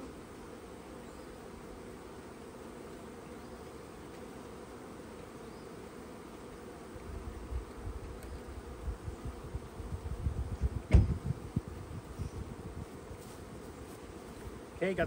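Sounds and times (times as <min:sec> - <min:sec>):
bees buzzing: 0:00.0 - 0:15.0
low rumbling bumps on microphone: 0:10.2 - 0:12.8.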